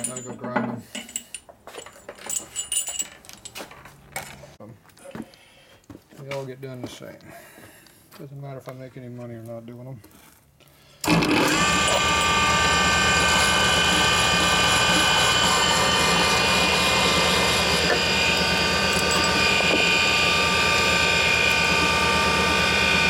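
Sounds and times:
grinding machine whining hum: 11.0s - 23.0s.

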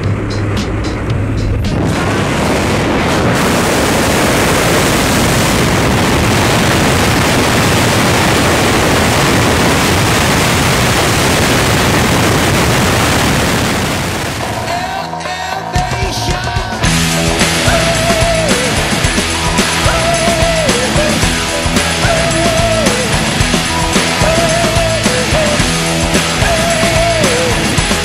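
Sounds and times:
wind buffeting microphone: 0.0s - 14.8s.

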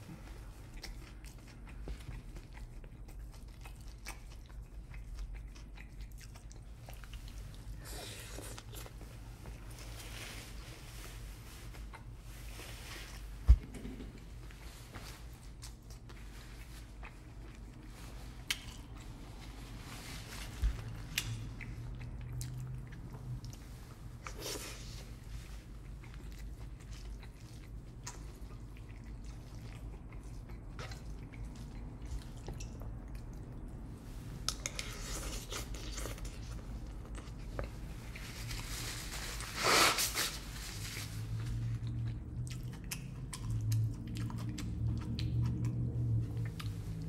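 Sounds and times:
chewing and mouth sounds: 0.0s - 47.0s
low steady hum: 0.0s - 47.0s.

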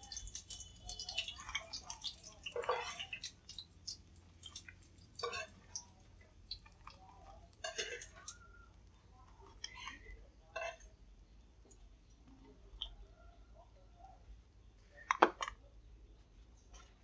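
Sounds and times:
oil crackling and dripping: 0.0s - 10.2s.

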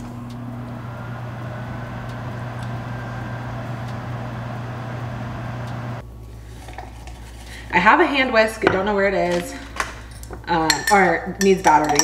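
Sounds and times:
microwave fan whirring: 0.0s - 6.2s
microwave oven humming: 0.0s - 6.2s.

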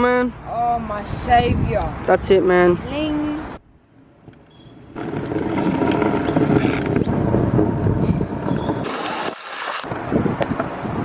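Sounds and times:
wind on microphone: 0.8s - 3.6s, 4.9s - 11.0s
scooter wheels rolling on concrete: 4.3s - 11.0s.

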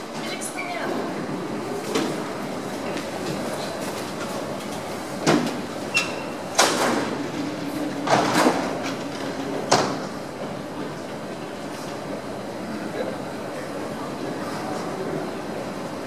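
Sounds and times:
train doors clunking shut: 5.1s - 10.6s.

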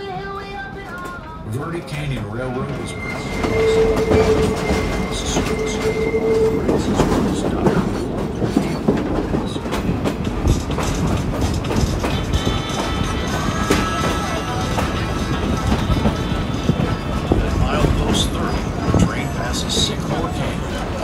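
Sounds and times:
train wheel squeal: 2.7s - 7.9s
train wheels clattering on rails: 2.7s - 21.0s.

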